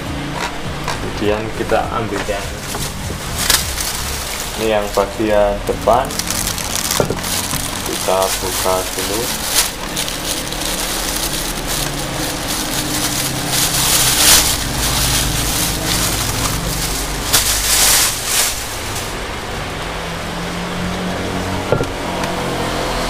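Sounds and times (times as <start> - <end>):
plastic wrapping crackling: 1.0 - 19.8.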